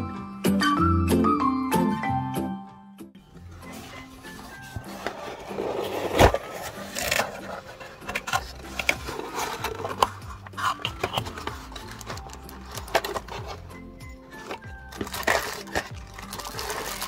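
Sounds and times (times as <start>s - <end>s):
cardboard box scraping rustle: 3.6s - 13.7s, 14.4s - 17.0s
plastic wrap crinkling: 4.0s - 13.7s, 14.3s - 17.0s.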